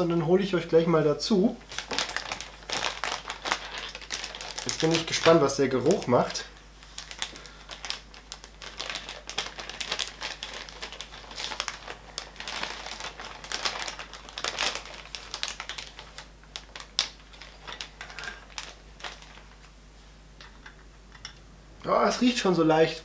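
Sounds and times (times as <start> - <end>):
plastic bag crinkling: 1.6 - 19.8.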